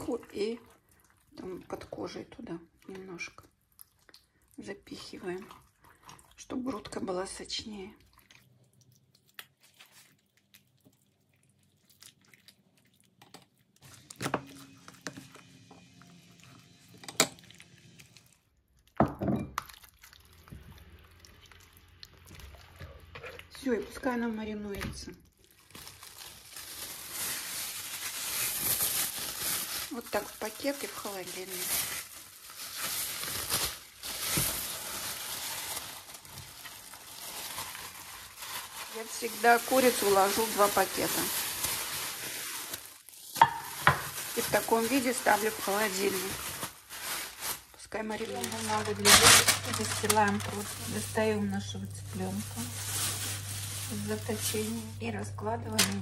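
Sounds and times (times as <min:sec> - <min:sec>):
plastic bag rustling: 0:25.4 - 0:56.0.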